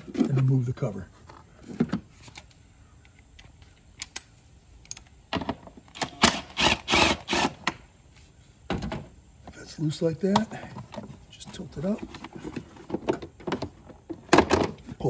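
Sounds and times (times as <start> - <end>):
cordless ratchet bursts: 6.0 - 7.6.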